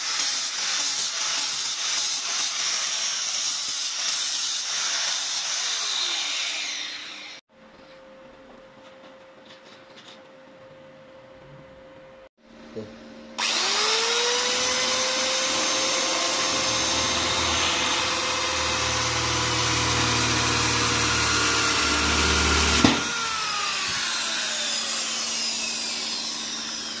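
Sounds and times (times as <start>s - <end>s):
power tool motor whine: 4.9s - 7.4s, 13.4s - 27.0s.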